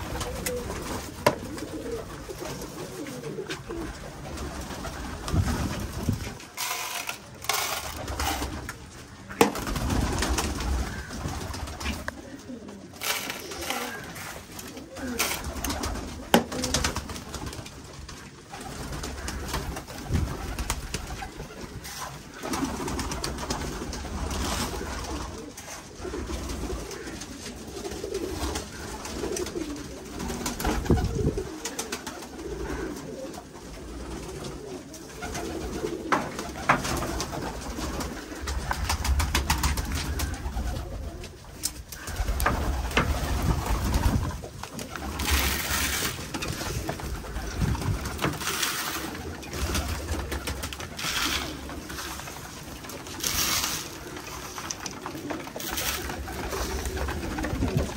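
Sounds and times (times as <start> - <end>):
pigeons cooing: 0.0 - 57.9
wings flapping: 0.0 - 57.9
grain poured into feeder boxes: 6.2 - 8.8, 12.9 - 15.9, 44.9 - 57.9.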